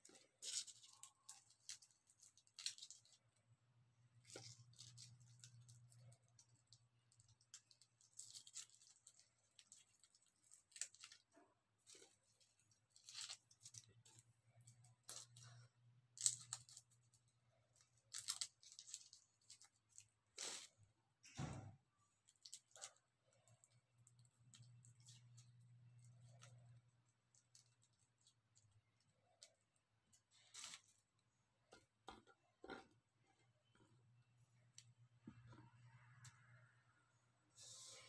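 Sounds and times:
garlic skins crackling: 0:00.0 - 0:03.4, 0:04.2 - 0:17.2.

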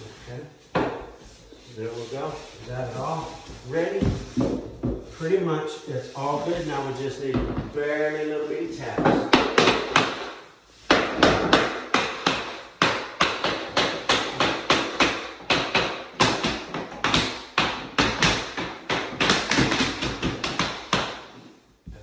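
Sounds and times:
tapping block knocking floor planks: 0:08.8 - 0:22.0.

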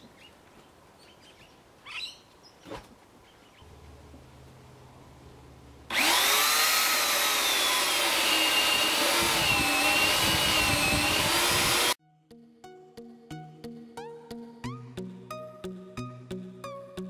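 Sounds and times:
electric chainsaw cutting log: 0:05.9 - 0:12.0
music: 0:12.0 - 0:17.0.

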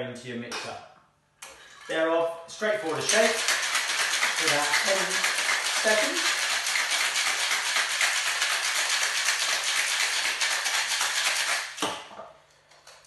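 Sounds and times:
ice rattling in cocktail shaker: 0:02.9 - 0:11.8.

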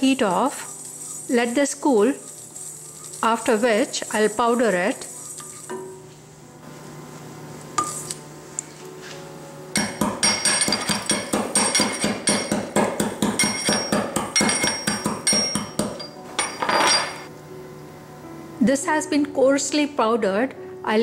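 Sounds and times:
metal pestle pounding in mortar: 0:09.8 - 0:16.7.

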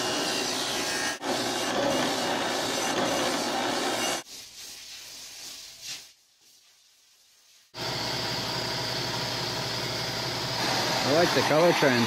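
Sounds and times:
buffing wheel noise: 0:00.0 - 0:04.2, 0:07.8 - 0:12.0.

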